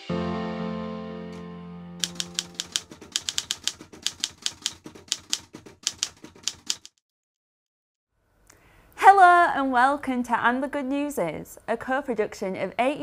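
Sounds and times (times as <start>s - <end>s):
music chord: 0.0s - 2.6s
typewriter keys striking: 2.0s - 7.0s.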